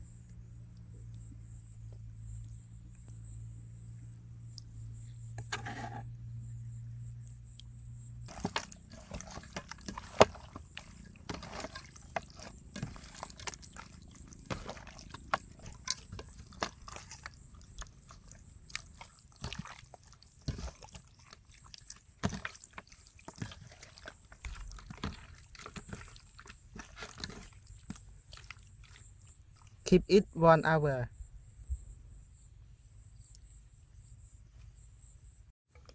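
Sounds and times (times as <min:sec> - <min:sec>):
hands squelching wet meat: 0:08.3 - 0:29.9.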